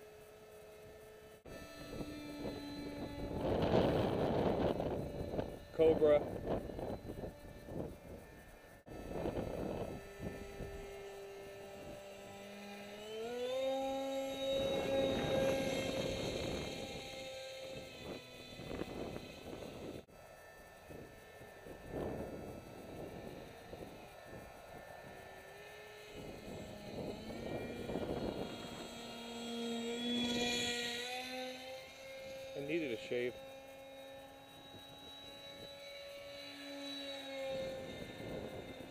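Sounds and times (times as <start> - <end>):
electric motor and propeller whine: 0.0 - 38.9
wind rumble on microphone: 1.5 - 12.0, 14.2 - 20.1, 20.8 - 25.0, 26.1 - 30.9, 37.3 - 38.9.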